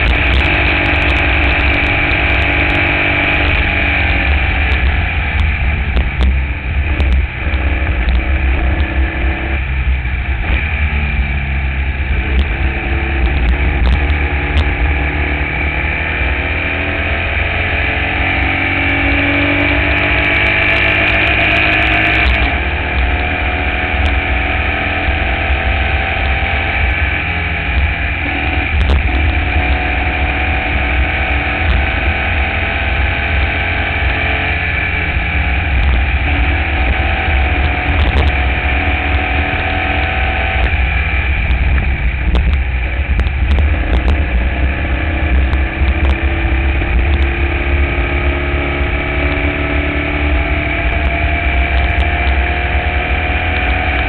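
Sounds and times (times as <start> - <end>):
race car engine running hard: 0.0 - 54.0
wind rumble on microphone: 0.0 - 54.0.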